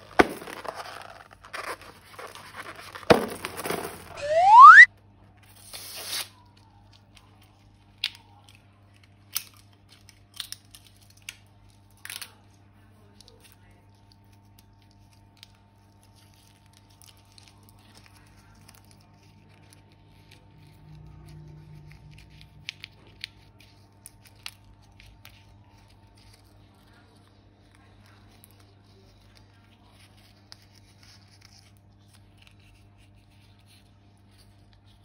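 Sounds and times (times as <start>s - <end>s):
plastic crinkling: 0.0s - 4.2s.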